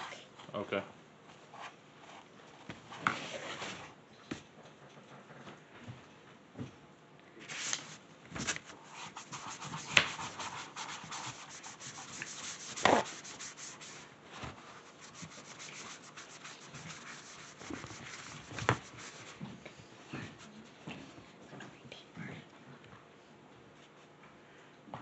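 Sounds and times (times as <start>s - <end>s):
scratchy rubbing strokes: 8.7s - 19.4s.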